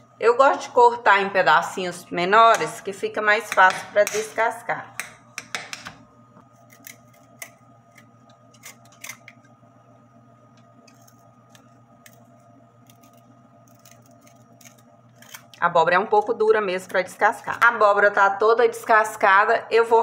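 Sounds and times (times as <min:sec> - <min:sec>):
faint steady hum: 0:00.0 - 0:20.0
vegetable peeler scraping: 0:06.6 - 0:09.4, 0:12.8 - 0:16.3.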